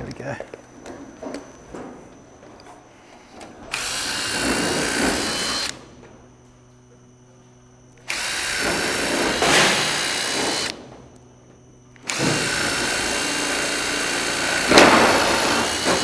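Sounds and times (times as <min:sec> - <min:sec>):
cordless drill boring through steel: 0:03.7 - 0:05.8, 0:08.0 - 0:10.8, 0:12.0 - 0:16.0.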